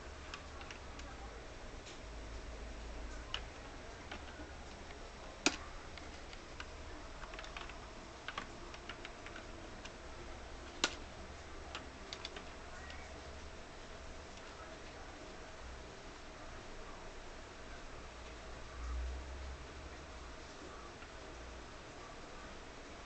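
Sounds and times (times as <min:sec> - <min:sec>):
low steady hum: 0:00.0 - 0:23.0
computer mouse clicks: 0:03.1 - 0:10.0, 0:10.8 - 0:11.0, 0:11.6 - 0:13.1.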